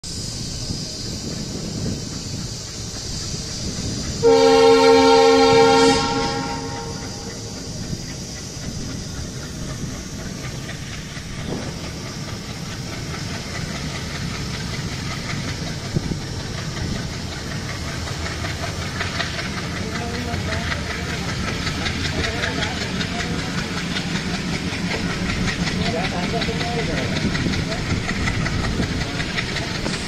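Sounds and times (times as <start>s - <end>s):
train rumble and wheel clatter: 0.0s - 30.0s
train horn blast: 4.2s - 7.5s.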